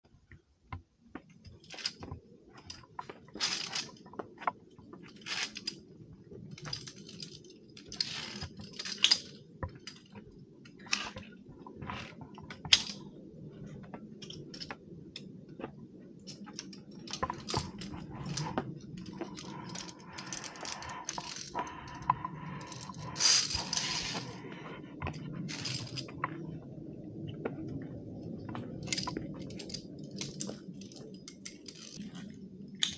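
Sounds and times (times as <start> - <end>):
carabiners clinking on steel cable: 1.5 - 4.0, 5.1 - 5.9, 6.5 - 10.2, 16.3 - 24.4, 25.5 - 26.2, 28.8 - 32.1
low steady rumble: 15.1 - 32.8.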